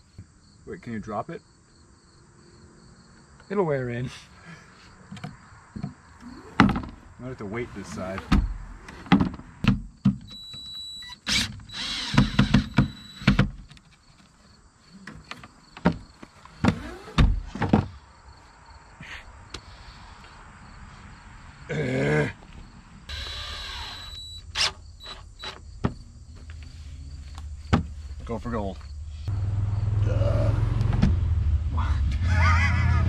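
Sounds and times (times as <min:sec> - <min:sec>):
wooden door knocking and scraping: 0:06.6 - 0:07.0, 0:08.3 - 0:10.3
cordless drill whirring: 0:11.0 - 0:13.3, 0:23.1 - 0:24.7.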